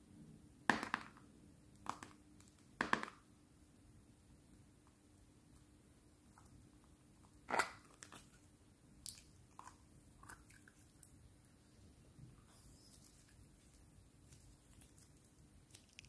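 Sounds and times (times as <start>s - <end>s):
jar handling clicks and crackles: 15.8s - 16.0s.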